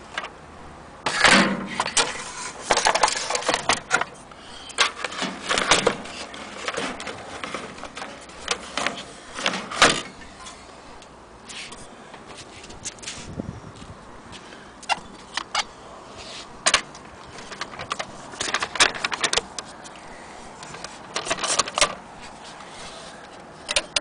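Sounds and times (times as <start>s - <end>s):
knocks and scrapes on sheet metal: 1.1s - 4.2s, 4.8s - 10.2s.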